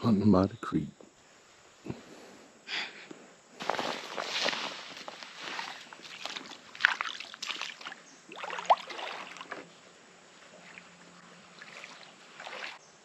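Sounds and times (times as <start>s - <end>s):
wading steps splashing in water: 3.6s - 9.7s, 10.6s - 12.8s.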